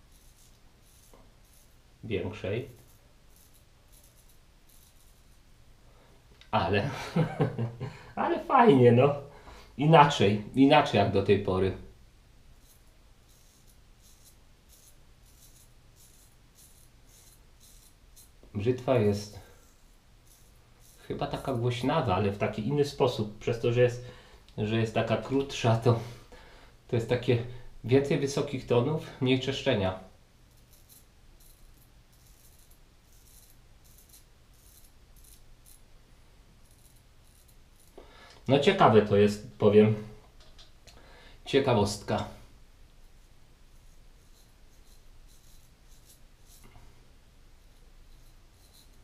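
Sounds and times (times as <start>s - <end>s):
razor scraping stubble: 0.0s - 1.8s, 2.6s - 5.5s, 12.6s - 22.6s, 30.5s - 35.9s, 36.6s - 38.1s, 43.0s - 46.8s, 47.6s - 49.0s.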